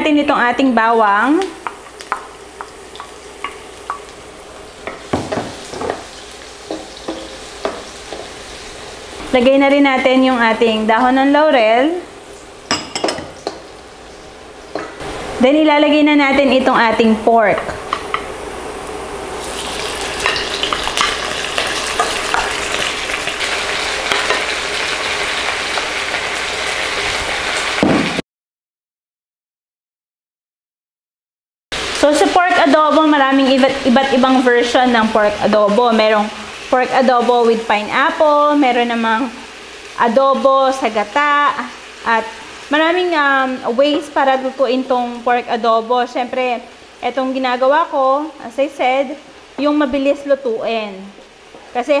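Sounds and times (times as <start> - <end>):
garlic sizzling in oil: 0.0 - 28.2, 31.7 - 52.0
wooden spoon knocking on pan: 4.8 - 8.4, 12.7 - 13.7.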